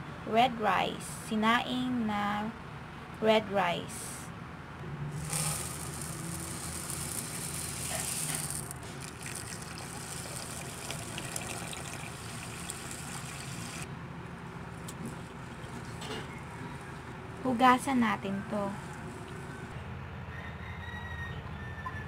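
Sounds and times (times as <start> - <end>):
hand swishing rice in water: 5.2 - 11.5
rice poured into metal pot: 5.2 - 13.8
tap water running into pot: 5.2 - 13.9, 18.8 - 19.7.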